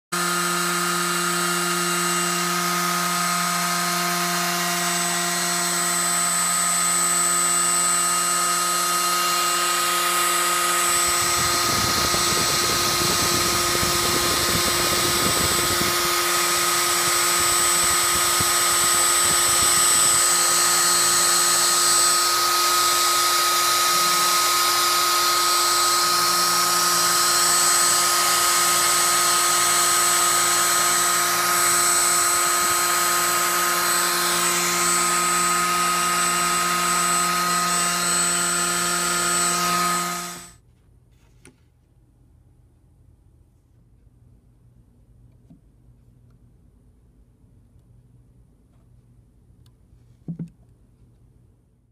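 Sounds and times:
router motor whining: 0.0s - 40.6s.

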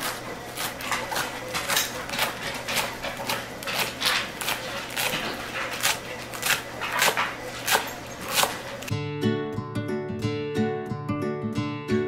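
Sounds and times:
knife chopping on wooden board: 0.0s - 8.9s.

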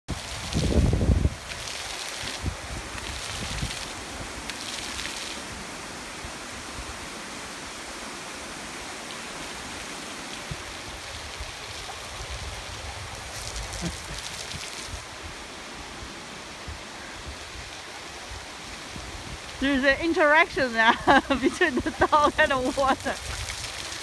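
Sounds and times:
fountain jets spraying on stone: 0.1s - 15.4s, 16.1s - 24.0s.

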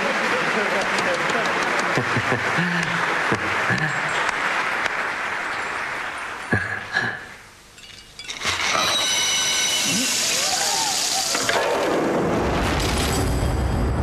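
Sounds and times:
crowd applauding: 0.0s - 7.4s, 8.5s - 11.9s.

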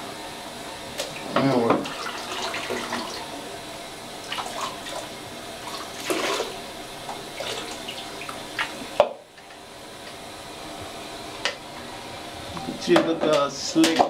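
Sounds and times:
water running in bathtub: 0.9s - 10.4s.

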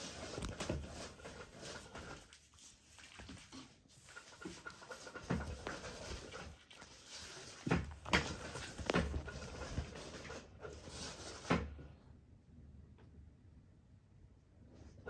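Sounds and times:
rustling: 0.0s - 11.5s.

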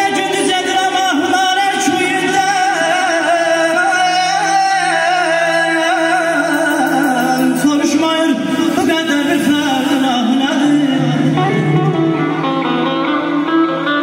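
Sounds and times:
keyboard drone: 0.0s - 14.0s
man singing through microphone: 0.0s - 14.0s
saz: 0.0s - 14.0s.

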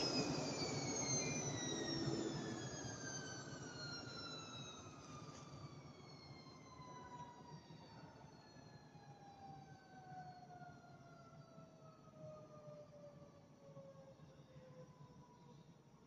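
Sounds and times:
motor whine winding down: 0.0s - 5.0s.

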